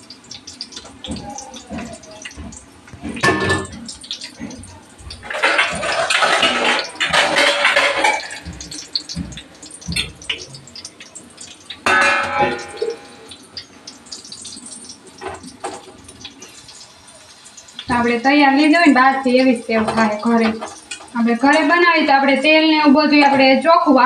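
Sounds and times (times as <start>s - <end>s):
oil sizzling and bubbling: 0.0s - 24.0s
metal utensils clanking: 1.0s - 10.8s, 11.8s - 13.4s, 19.7s - 21.9s.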